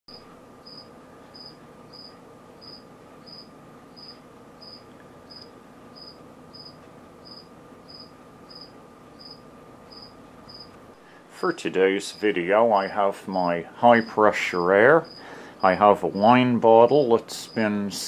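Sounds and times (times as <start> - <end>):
cricket chirping: 0.1 - 10.7, 14.7 - 15.8
faint steady hum: 0.1 - 18.0.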